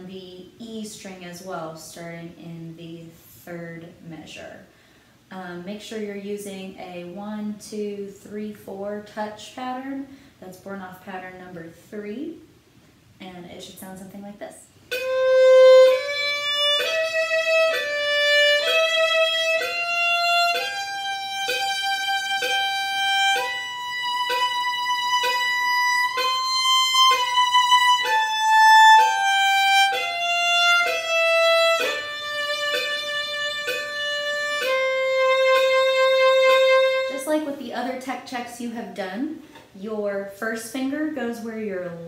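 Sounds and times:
solo violin playing: 14.9s - 37.3s.

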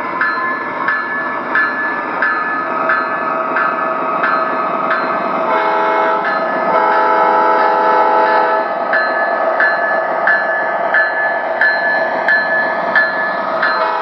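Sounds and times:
locomotive bell dinging: 0.0s - 14.0s
model locomotives running on track: 0.0s - 14.0s
diesel horn blasts: 5.5s - 8.7s, 13.8s - 14.0s.

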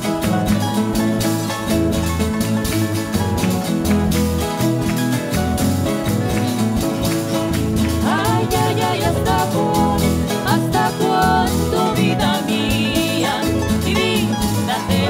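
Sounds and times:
harp and strummed guitars: 0.0s - 15.0s
person singing: 7.9s - 15.0s.

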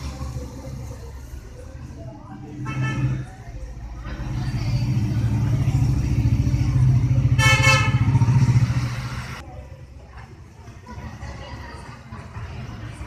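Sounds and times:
vehicle engine rumbling: 0.0s - 9.5s.

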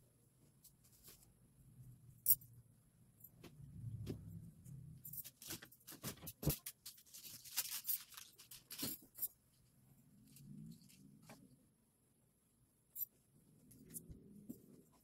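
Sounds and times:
clicks and knocks in closet: 5.1s - 7.0s.

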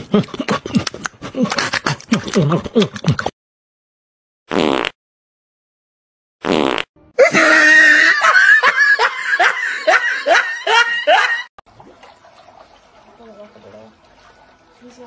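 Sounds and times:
person laughing hard: 0.0s - 3.3s, 7.2s - 11.5s.

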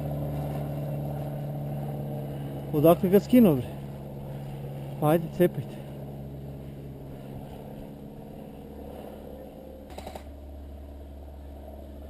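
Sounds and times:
steady low rumble: 0.0s - 12.0s
rapid clicking gun shots: 9.9s - 10.3s.

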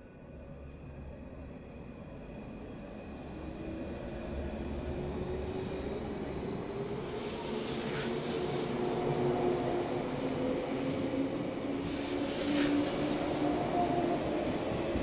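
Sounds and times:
train running noise: 3.1s - 15.0s.

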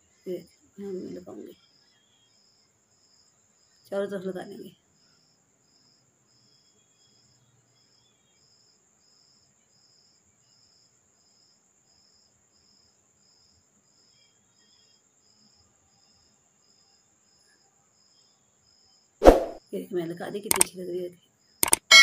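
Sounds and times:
faint high chirp: 21.6s - 22.0s.

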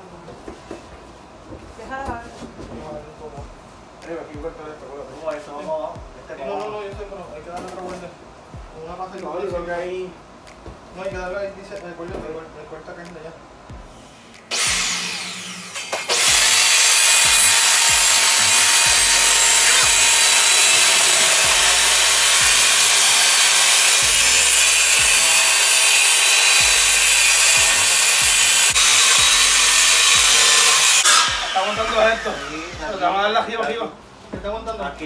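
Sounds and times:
circular saw cutting panel: 14.4s - 33.4s.

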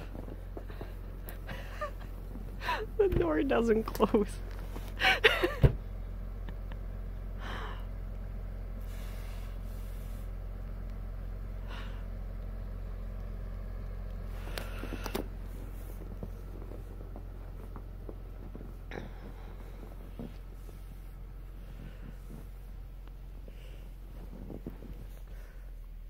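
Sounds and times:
car engine idling: 0.0s - 26.0s.

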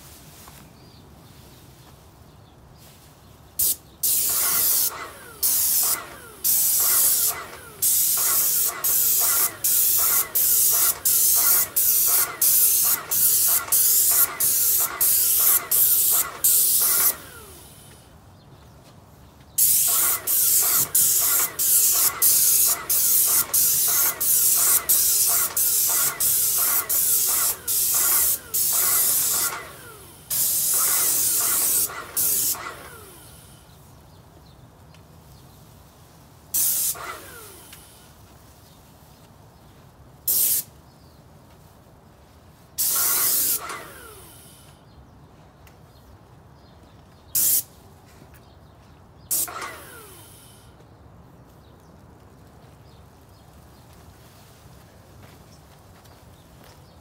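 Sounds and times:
paint spray gun hissing: 3.6s - 18.0s, 19.6s - 33.8s, 36.5s - 38.2s, 40.3s - 40.7s, 42.8s - 44.8s, 47.4s - 47.7s, 49.3s - 50.8s.

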